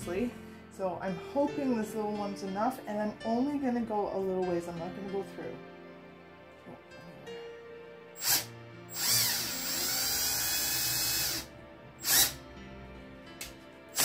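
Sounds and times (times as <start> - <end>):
cordless drill whining: 8.2 - 12.4.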